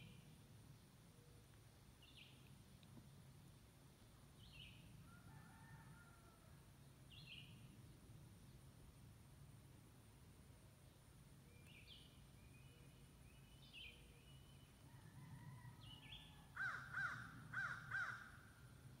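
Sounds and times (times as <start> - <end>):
loud arched bird calls: 15.9 - 18.6.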